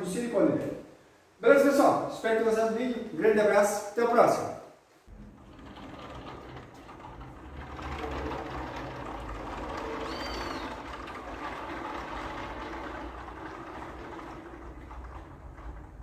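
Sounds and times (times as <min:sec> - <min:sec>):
glass doors rolling on track: 0:05.1 - 0:16.0.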